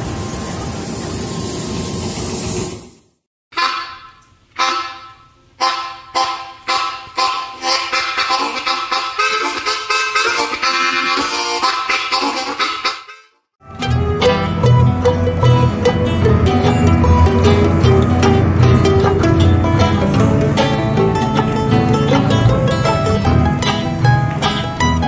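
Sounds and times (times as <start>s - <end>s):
music with struck ringing notes: 13.6s - 25.0s.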